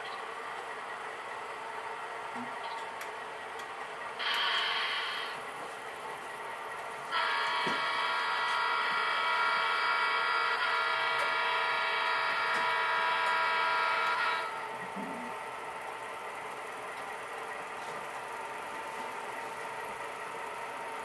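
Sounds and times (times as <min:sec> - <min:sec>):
simulated diesel engine sound: 0:00.0 - 0:21.0
model locomotive horn blast: 0:07.1 - 0:14.6.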